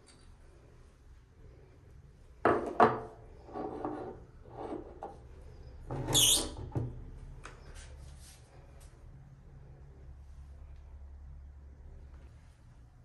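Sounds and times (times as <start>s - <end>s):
objects scraping on wood: 3.4s - 5.2s.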